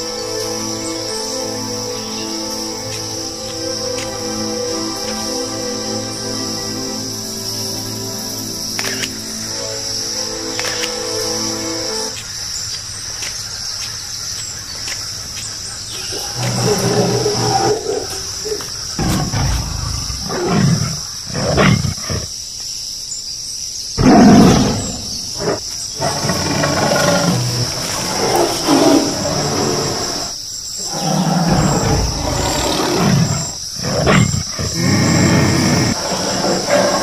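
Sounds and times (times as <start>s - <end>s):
tiger roaring and growling: 16.0s - 22.3s, 24.0s - 37.0s.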